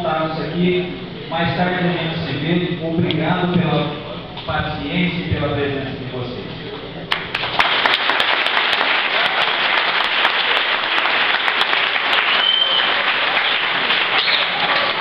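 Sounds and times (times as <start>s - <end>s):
audience applauding: 7.1s - 15.0s.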